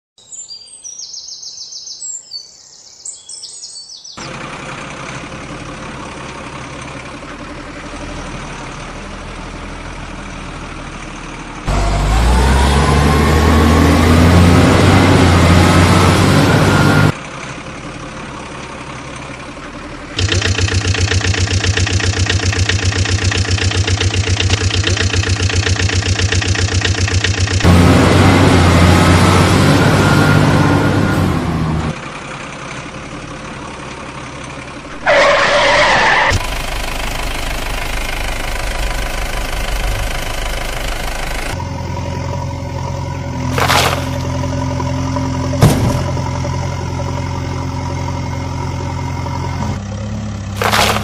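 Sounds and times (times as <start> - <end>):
truck engine running: 4.0 - 51.0
engine revving with rising whine: 11.6 - 17.2, 20.1 - 32.0, 34.9 - 51.0.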